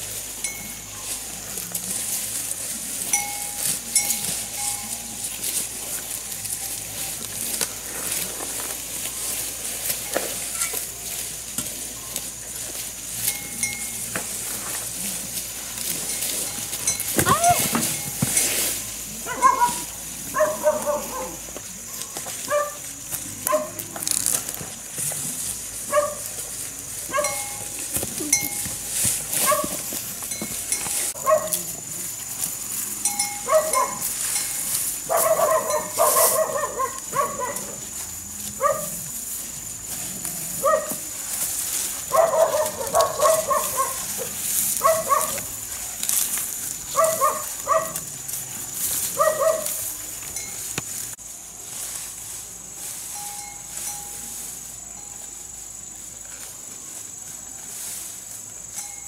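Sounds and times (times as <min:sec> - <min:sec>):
animal high-pitched calls: 0:17.1 - 0:18.0, 0:19.2 - 0:21.4.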